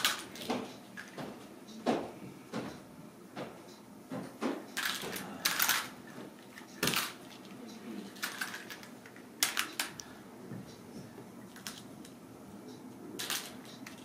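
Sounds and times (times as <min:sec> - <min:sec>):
plastic ball toy clicking and rattling: 0:08.2 - 0:10.0, 0:13.2 - 0:14.0.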